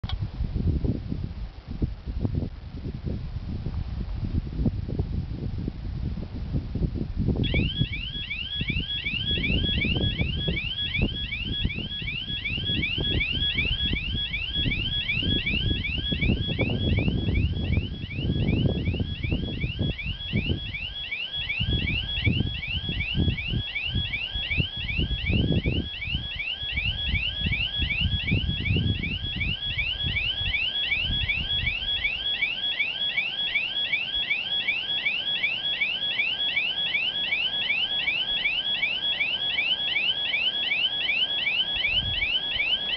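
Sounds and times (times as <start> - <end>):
gusty low rumble: 0.0 - 8.0, 9.3 - 20.8, 26.9 - 31.8
level crossing warning alarm: 7.4 - 42.9.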